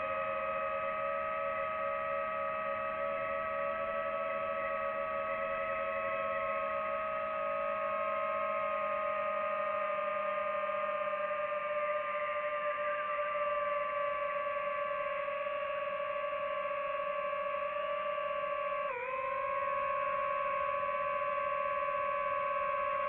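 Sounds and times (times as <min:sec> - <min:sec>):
drone propellers whining: 0:14.2 - 0:23.0.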